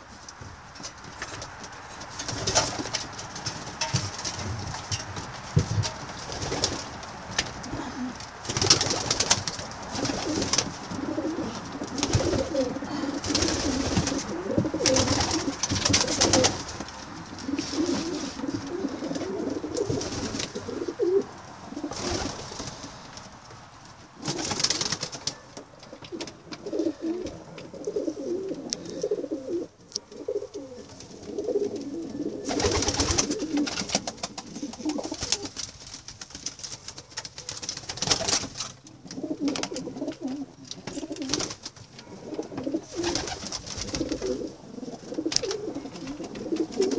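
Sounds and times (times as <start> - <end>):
rustling: 0.0 - 46.9
pigeons cooing: 6.4 - 23.0, 24.1 - 35.6, 38.9 - 46.9.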